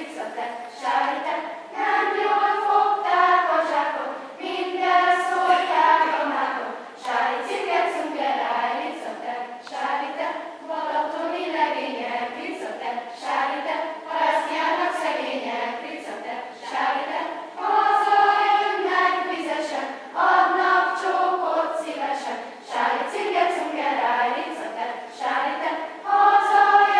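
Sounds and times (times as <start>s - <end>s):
children's choir singing: 0.0s - 26.9s.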